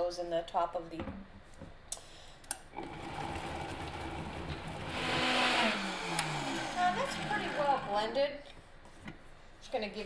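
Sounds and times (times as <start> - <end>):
blender motor running: 2.8 - 8.2.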